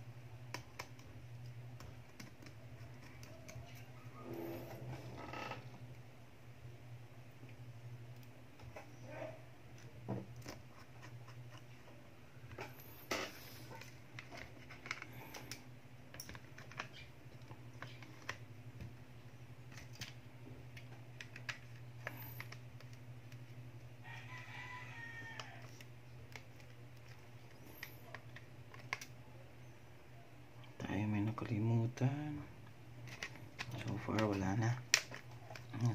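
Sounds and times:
steady low hum: 0:00.0 - 0:35.9
rooster crowing: 0:24.0 - 0:25.8.

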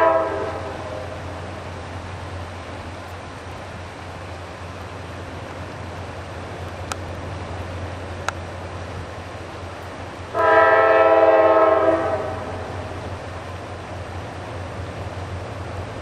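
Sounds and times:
locomotive air horn blast: 0:00.0 - 0:01.3, 0:10.3 - 0:13.0
train rumble: 0:00.0 - 0:16.0.

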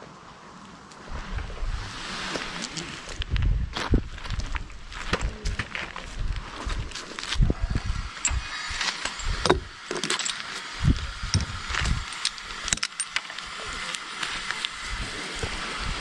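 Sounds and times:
gear rustling against bark: 0:01.0 - 0:16.0
climbing hardware clinking: 0:08.2 - 0:10.7.

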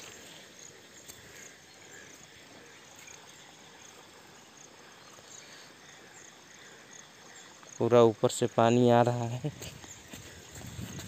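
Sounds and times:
low outdoor hiss: 0:00.0 - 0:10.6
insects chirping: 0:00.0 - 0:11.0.

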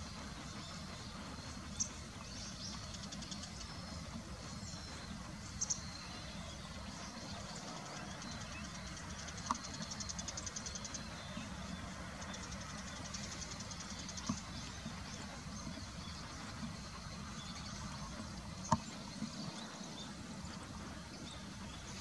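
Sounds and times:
small birds twittering: 0:00.0 - 0:22.0
steady low rumble: 0:00.0 - 0:22.0.

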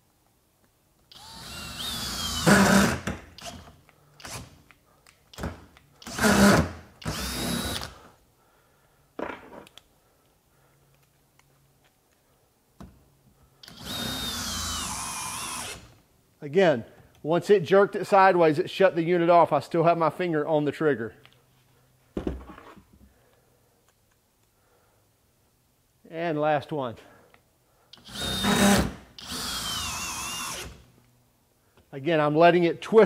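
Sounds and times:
drill motor whining and straining: 0:01.1 - 0:04.5, 0:06.0 - 0:08.0, 0:13.6 - 0:16.0, 0:28.0 - 0:30.8
drill and screw rattling: 0:01.1 - 0:04.6, 0:05.3 - 0:08.0, 0:13.6 - 0:16.0, 0:28.0 - 0:30.8.

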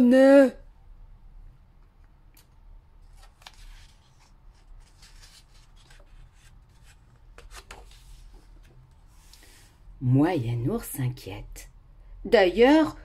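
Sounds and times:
page turning: 0:03.0 - 0:09.4.

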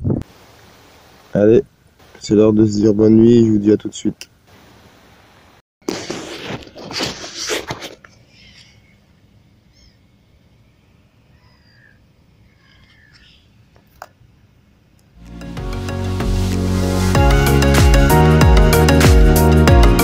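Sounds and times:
faint bird chirps: 0:08.2 - 0:13.8.

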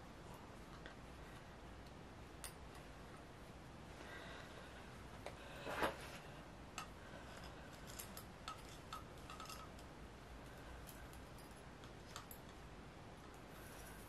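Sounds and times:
wire rustle: 0:03.9 - 0:14.0.

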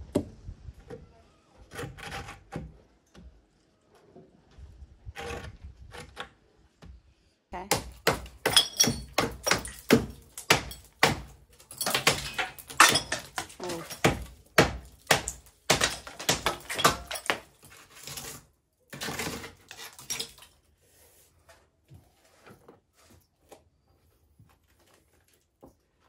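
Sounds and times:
hammer blows on timber and masonry: 0:07.6 - 0:17.6.

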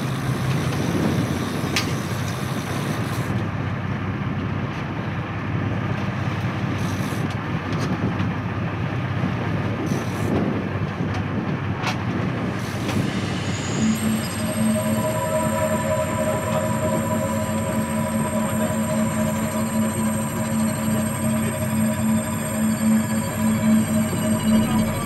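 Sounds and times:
wind: 0:00.0 - 0:25.0
boat engine running: 0:12.3 - 0:25.0
sea noise: 0:12.4 - 0:25.0.

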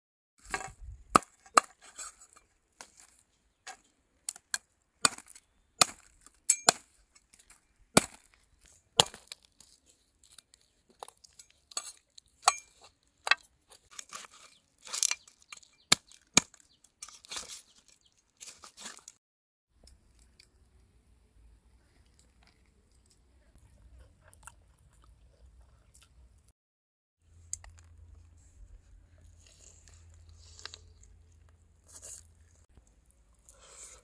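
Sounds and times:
crackly tearing of food: 0:08.2 - 0:19.2.

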